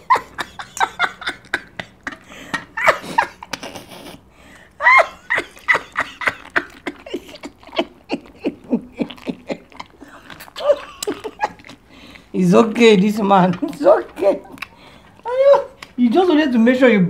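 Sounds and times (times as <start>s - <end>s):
woman laughing: 0.0s - 4.2s, 4.8s - 11.8s, 13.6s - 14.6s, 15.2s - 15.8s.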